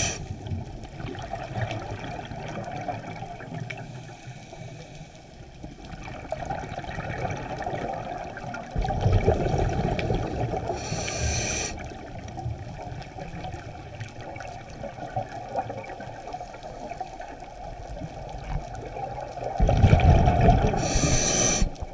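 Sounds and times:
regulator inhalation hiss: 0.0 - 0.3, 10.8 - 11.9, 20.7 - 21.9
underwater wash: 0.0 - 21.9
bubbling underwater exhalation: 19.5 - 21.9.

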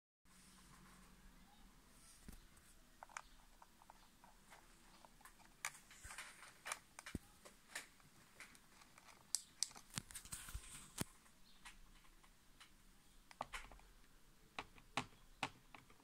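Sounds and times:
fingers tapping plastic buttons: 11.6 - 16.0.

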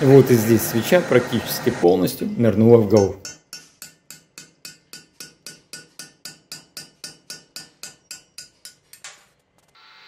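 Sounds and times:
hammer tapping on steel punch: 2.9 - 9.2.

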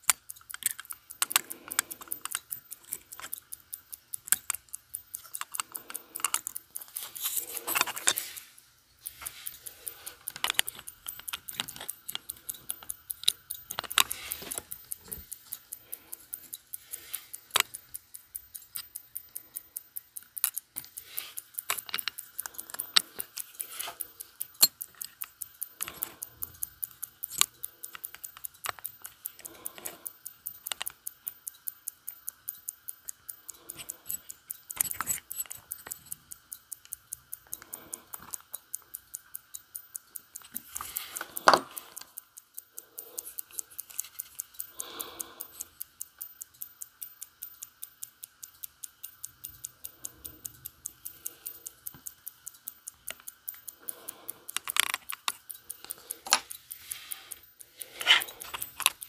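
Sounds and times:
metal tweezers clicking: 0.0 - 59.0
watch ticking: 0.0 - 59.0.

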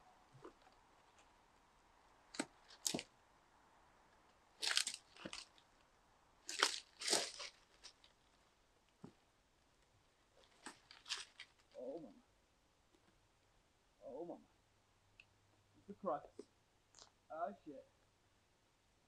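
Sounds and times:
footsteps crunching through leaf litter: 4.6 - 5.5, 6.5 - 7.9, 10.9 - 11.6.

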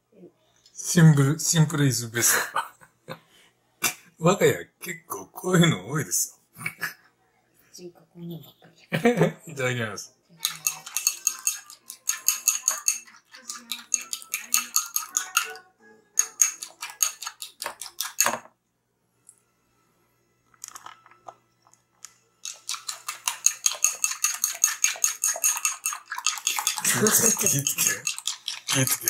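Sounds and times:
chopsticks beating egg in bowl: 10.4 - 15.6, 16.2 - 18.4, 22.4 - 29.0.

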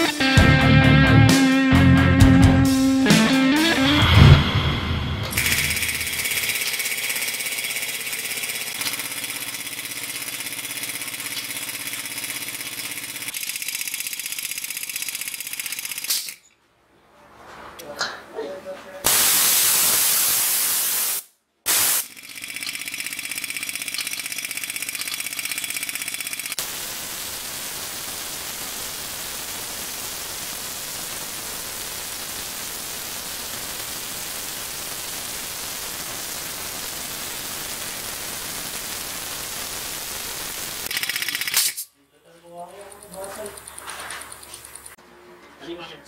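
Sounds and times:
compressed air hissing: 19.1 - 22.1.

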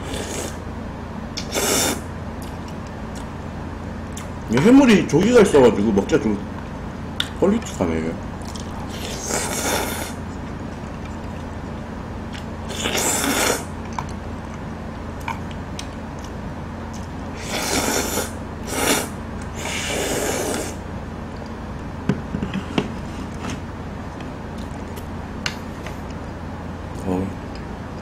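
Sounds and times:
person slurping noodles: 0.0 - 0.6, 1.4 - 2.0, 8.9 - 10.2, 12.7 - 13.7, 17.4 - 20.8.

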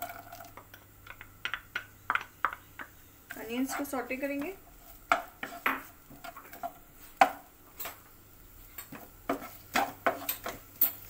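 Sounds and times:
onions stirred in oil: 2.0 - 7.5, 8.6 - 11.0
spatula scraping a pan: 3.4 - 6.8, 9.0 - 10.6.

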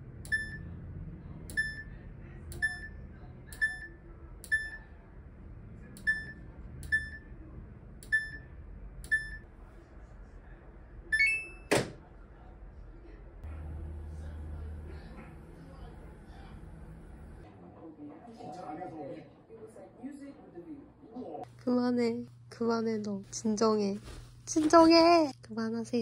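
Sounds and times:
short electronic beeps: 0.3 - 0.7, 1.5 - 1.9, 2.6 - 3.0, 6.0 - 7.3, 11.2 - 11.7.

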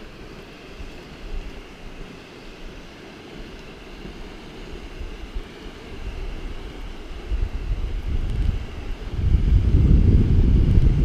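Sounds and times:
wind buffeting microphone: 4.0 - 11.0.

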